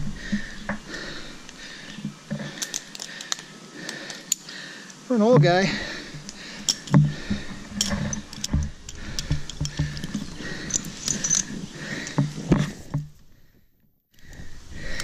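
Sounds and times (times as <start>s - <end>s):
carabiners clicking and clinking: 1.4s - 5.0s, 5.6s - 13.2s
metallic jingles: 5.6s - 12.4s.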